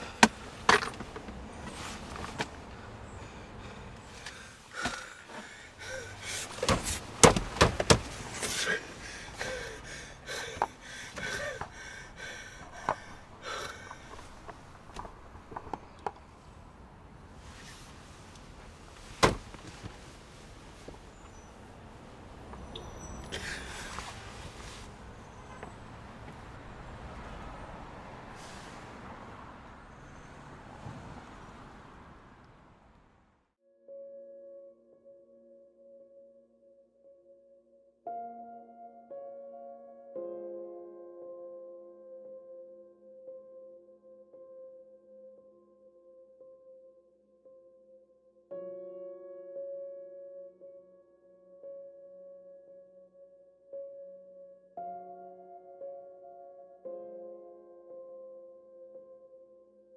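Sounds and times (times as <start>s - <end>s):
city street traffic rumble: 0.0s - 33.5s
man sobbing and gasping: 4.8s - 6.7s, 8.4s - 14.1s
sharp knocks: 6.4s - 8.3s, 19.2s - 19.8s.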